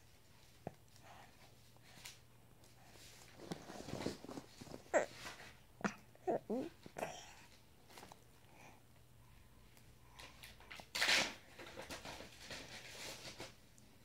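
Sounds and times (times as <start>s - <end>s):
baby grunting and breathing: 4.8s - 7.5s.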